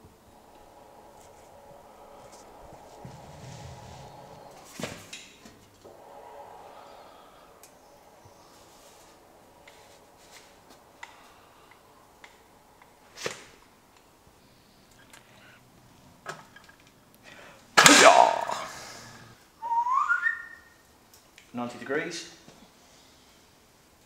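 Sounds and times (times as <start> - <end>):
rising squeal: 0.0 - 13.9.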